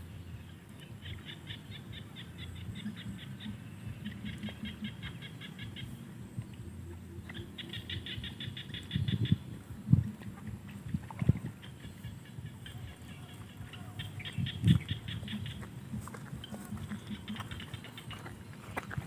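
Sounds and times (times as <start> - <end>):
frogs calling with clicking notes: 0.1 - 19.0.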